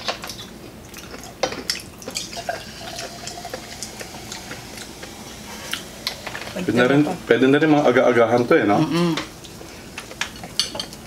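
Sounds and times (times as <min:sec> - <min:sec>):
cola pouring and fizzing: 0:02.1 - 0:04.7.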